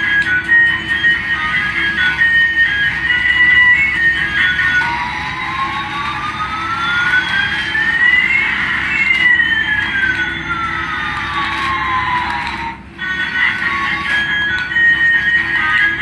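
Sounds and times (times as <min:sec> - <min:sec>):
electronic toy gliding tones: 0:00.0 - 0:16.0.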